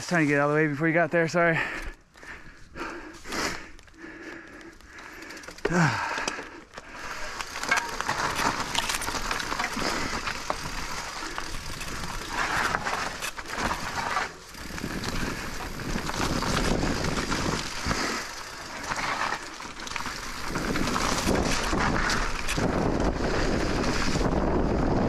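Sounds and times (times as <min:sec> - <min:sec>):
bike tyres on rough trail: 0:00.0 - 0:25.0
bike clicks and rattles: 0:01.5 - 0:25.0
wind rumbling on microphone: 0:08.1 - 0:25.0.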